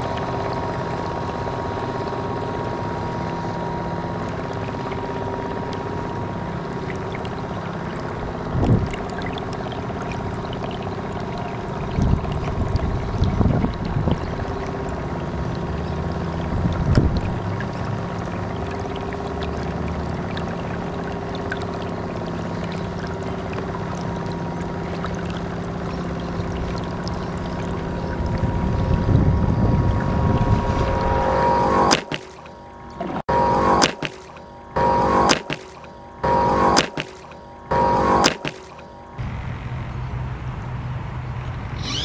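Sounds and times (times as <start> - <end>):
model boat motor whining: 0.0 - 40.4, 41.5 - 42.0
water rushing along hull: 0.0 - 42.0
water splash: 29.9 - 34.4, 35.0 - 35.9, 36.5 - 38.9.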